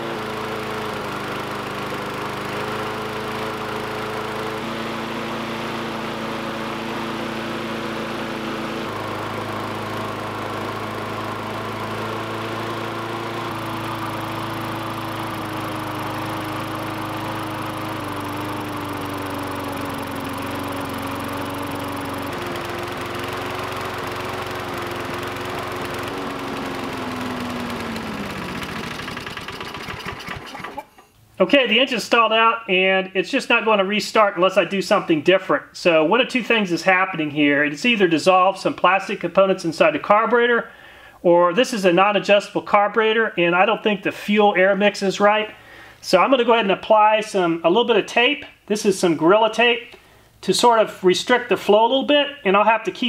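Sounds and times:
lawn mower engine running: 0.0s - 31.4s.

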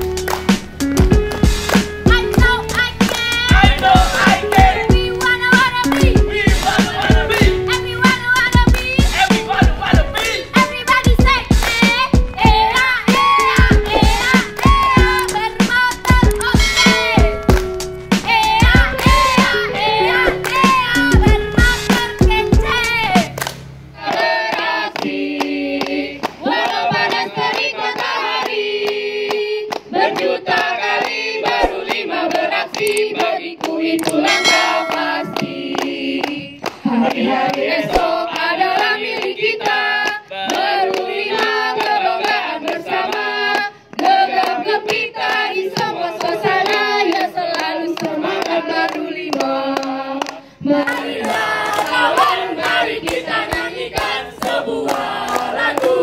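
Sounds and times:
backing music: 0.0s - 24.4s, 33.8s - 40.0s, 50.8s - 56.0s
hand clapping: 0.1s - 12.3s, 13.1s - 22.3s, 23.2s - 56.0s
group singing a cheer chant: 2.1s - 23.4s, 24.0s - 56.0s.

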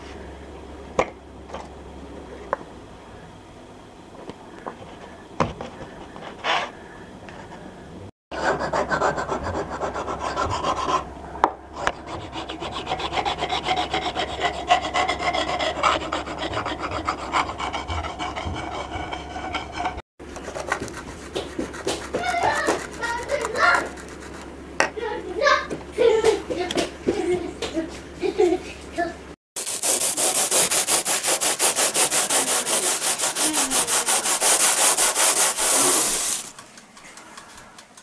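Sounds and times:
abrasive block scraping filler: 29.6s - 36.6s.

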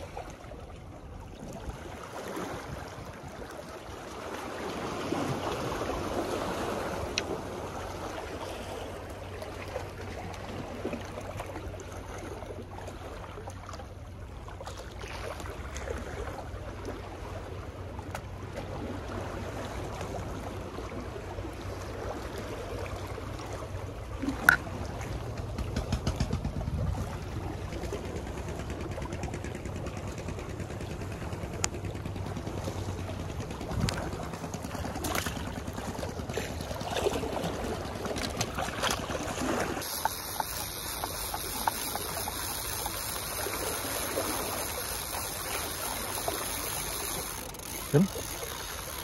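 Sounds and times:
sea water washing against wall: 24.3s - 49.0s.

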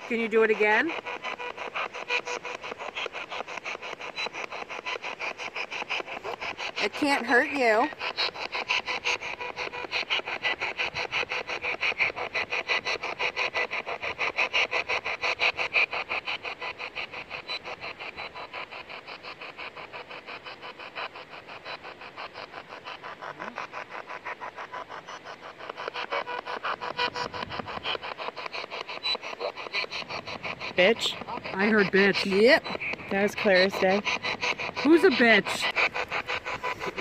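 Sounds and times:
pulsing radio static: 0.0s - 37.0s.

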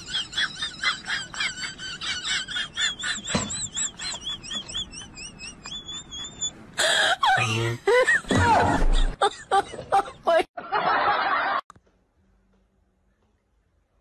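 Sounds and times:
high wavering chirps: 3.6s - 6.6s.

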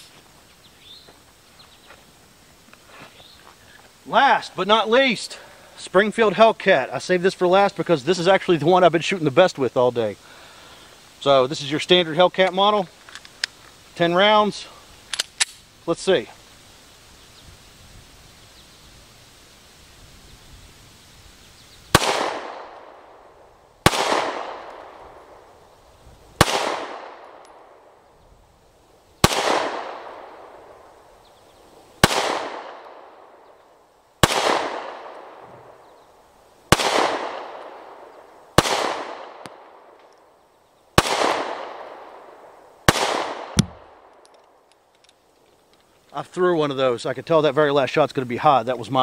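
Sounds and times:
pistol shots with echo: 21.9s - 23.1s, 23.8s - 25.0s, 26.4s - 27.4s, 29.2s - 30.5s, 32.0s - 33.2s, 34.2s - 35.4s, 36.7s - 39.9s, 41.0s - 42.2s, 42.9s - 44.0s.

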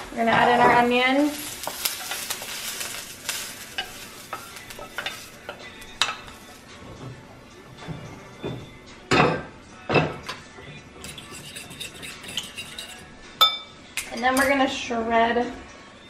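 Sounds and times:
faint sizzle: 0.0s - 7.8s
spatula scraping frying pan: 0.5s - 6.6s, 11.0s - 13.1s.

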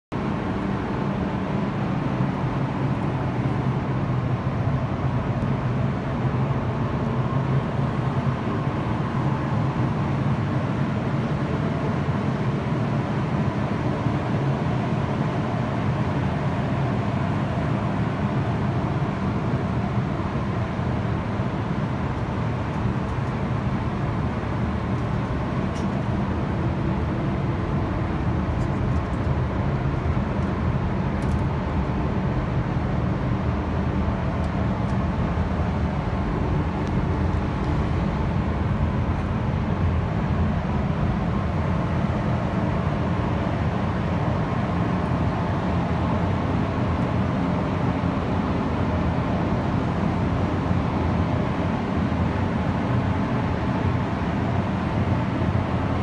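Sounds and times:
ventilation fans running: 0.1s - 56.0s.

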